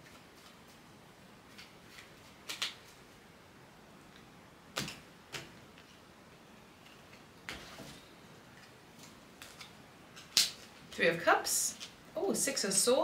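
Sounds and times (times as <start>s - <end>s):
cards snapping and clicking: 1.5s - 2.9s, 9.4s - 10.7s.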